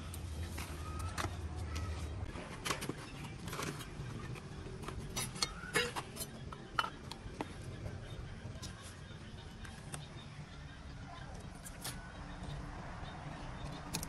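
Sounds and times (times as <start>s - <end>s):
hand tools clinking and knocking: 2.6s - 7.6s.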